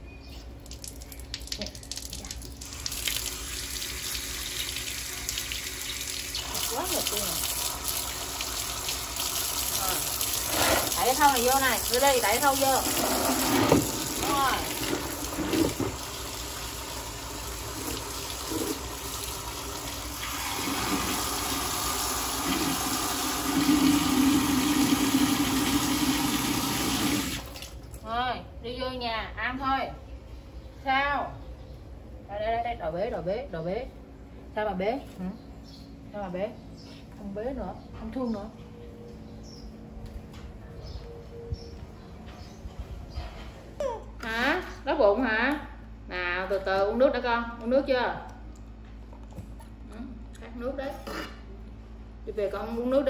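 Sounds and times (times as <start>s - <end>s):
tap water running: 0.6s - 27.8s.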